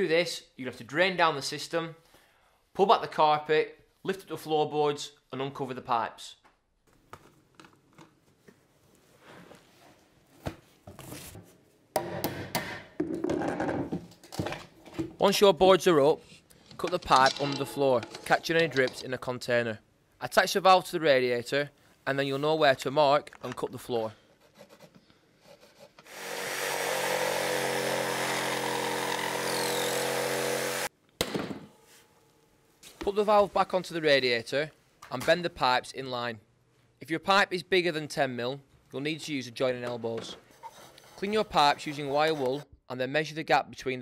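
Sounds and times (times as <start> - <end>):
power saw cutting wood: 26.1 - 30.9.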